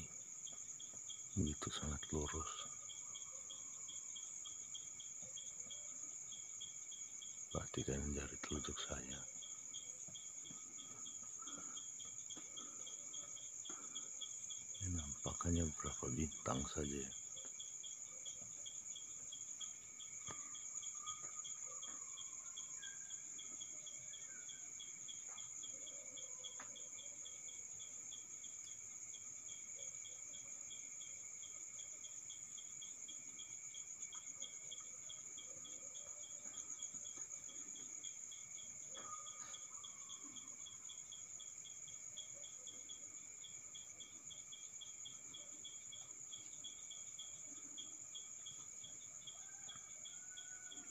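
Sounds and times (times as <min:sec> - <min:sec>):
crickets trilling: 0:00.0 - 0:50.9
insect chirping in fast pulse: 0:00.0 - 0:50.9.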